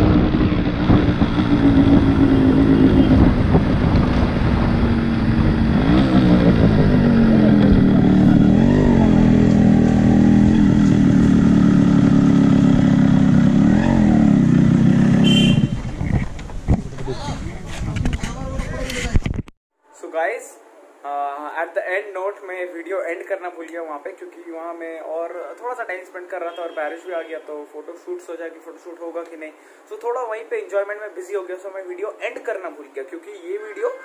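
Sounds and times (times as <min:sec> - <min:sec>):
two-stroke motorcycle engine running: 0:09.8 - 0:16.3.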